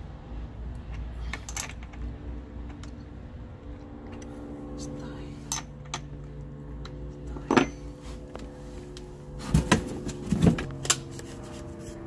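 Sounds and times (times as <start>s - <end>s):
steady low hum: 0.0s - 12.0s
knocks and rattles of parts: 0.8s - 3.2s, 6.8s - 12.0s.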